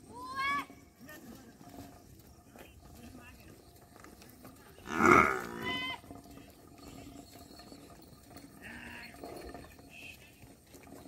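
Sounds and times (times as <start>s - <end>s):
animal herd calling: 4.8s - 6.0s.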